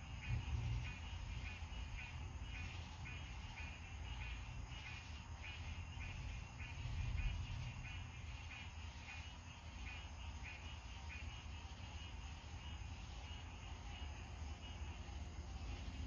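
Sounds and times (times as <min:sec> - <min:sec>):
distant thunder rumble: 0:00.0 - 0:04.8, 0:05.7 - 0:08.7
night animals chirping: 0:00.0 - 0:16.0.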